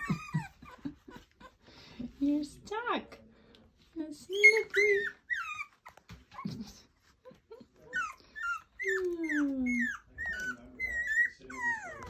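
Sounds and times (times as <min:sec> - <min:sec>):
puppies squeaking and whimpering: 0:00.0 - 0:01.6, 0:04.3 - 0:12.0.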